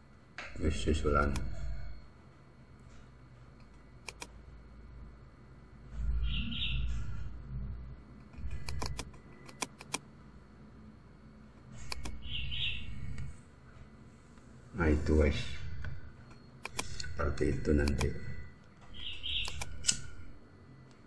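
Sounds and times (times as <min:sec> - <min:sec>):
computer mouse clicks: 0:01.2 - 0:01.6, 0:03.6 - 0:04.4, 0:08.2 - 0:10.1, 0:11.7 - 0:12.2, 0:16.6 - 0:17.1, 0:17.8 - 0:18.2, 0:19.3 - 0:20.1.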